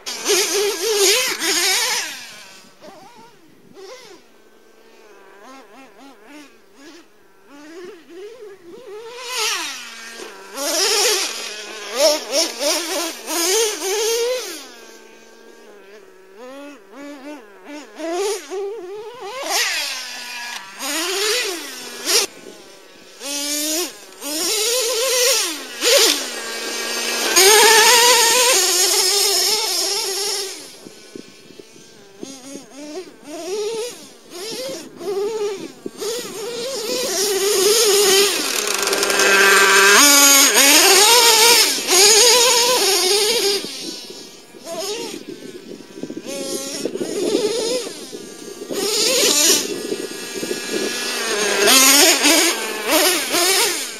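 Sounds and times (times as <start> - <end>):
rc nitro engine buzzing: 0.0 - 53.9.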